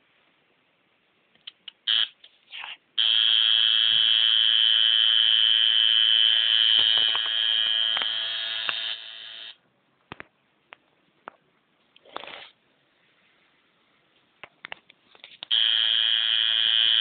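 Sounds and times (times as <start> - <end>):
tattoo machine buzzing: 1.9 - 2.1, 3.0 - 9.6, 15.5 - 17.0.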